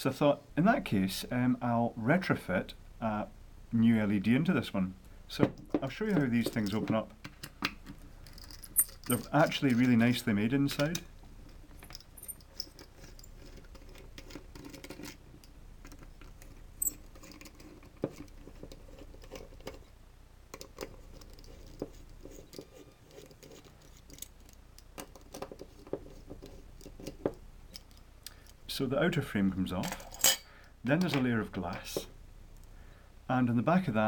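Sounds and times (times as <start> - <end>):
screwdriver scratching in screws: 20.8 - 24.5.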